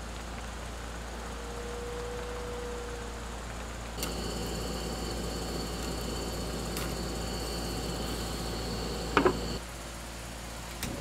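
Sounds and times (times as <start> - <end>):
background ambience: 0.0 - 10.6
gas stove burner hissing: 4.0 - 9.6.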